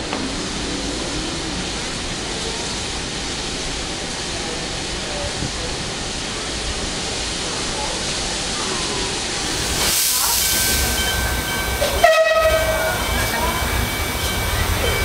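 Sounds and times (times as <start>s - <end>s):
steam locomotive hissing: 0.2s - 15.0s
faint voices: 4.0s - 15.0s.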